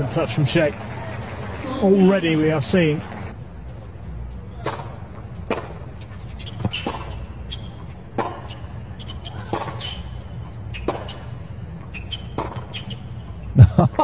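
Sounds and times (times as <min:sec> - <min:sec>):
racket striking ball: 0:04.5 - 0:13.1
tennis ball bouncing: 0:04.5 - 0:13.4
shoe squeaks: 0:05.4 - 0:13.5.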